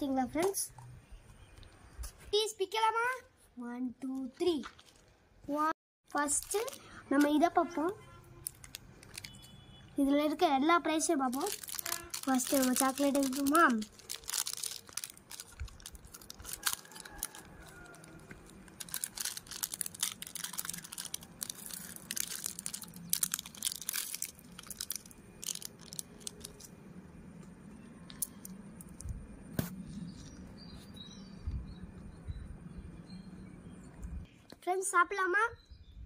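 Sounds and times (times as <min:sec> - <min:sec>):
plastic wrapper crinkling and tearing: 0:06.1 - 0:07.4, 0:08.4 - 0:09.6, 0:11.1 - 0:26.8.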